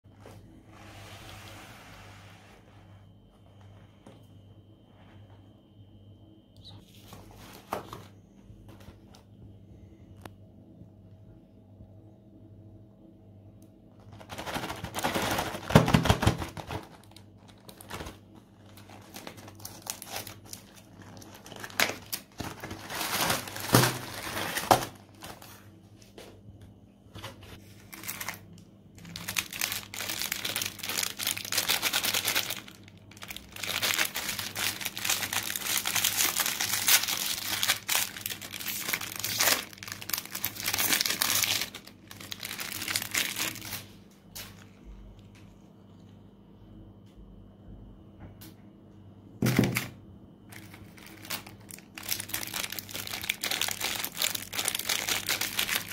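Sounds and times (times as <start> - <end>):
foil wrappers crinkling and tearing: 14.0 - 25.7, 27.6 - 44.6, 50.5 - 55.9.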